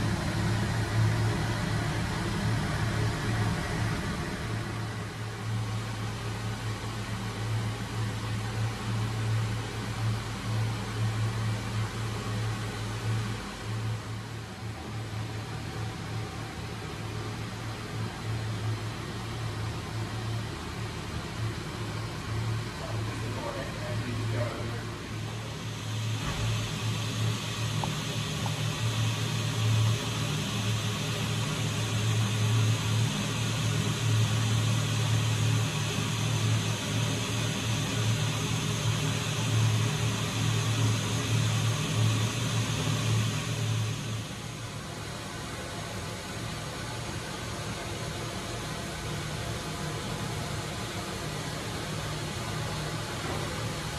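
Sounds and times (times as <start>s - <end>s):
fan humming with air rush: 0.0s - 53.9s.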